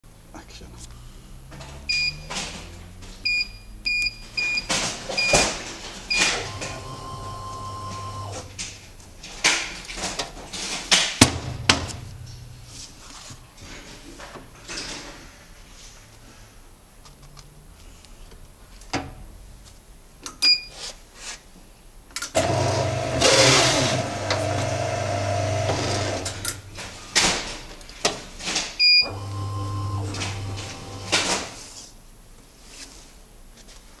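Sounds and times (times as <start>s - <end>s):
short beeps: 1.9s - 2.3s, 3.2s - 5.4s
paper cutter motor humming: 6.3s - 8.5s, 22.4s - 26.4s, 29.1s - 31.4s.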